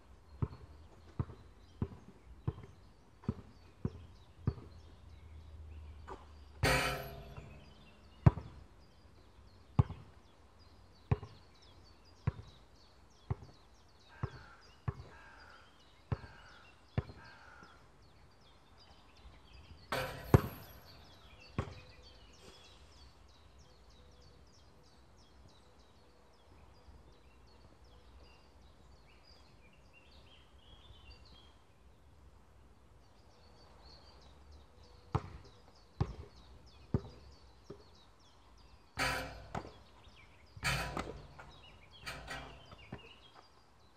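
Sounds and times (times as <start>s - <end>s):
birds chirping: 0.3s - 31.6s, 33.1s - 43.9s
basketball bouncing on court: 0.4s - 4.7s, 8.2s - 8.6s, 9.8s - 10.0s, 11.1s - 11.4s, 12.2s - 12.6s, 19.9s - 21.0s, 35.1s - 36.3s, 36.9s - 37.8s, 39.0s - 39.8s, 40.6s - 43.0s.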